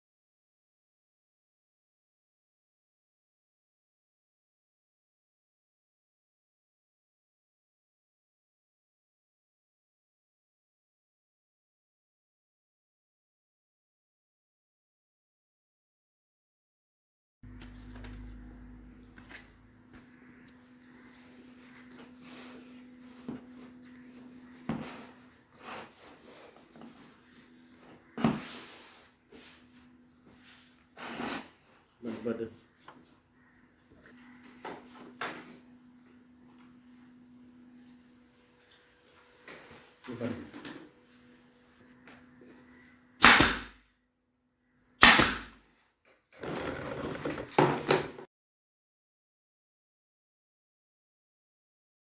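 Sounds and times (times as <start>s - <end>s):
pneumatic staple gun firing: 43.2s - 43.8s, 45.0s - 45.6s.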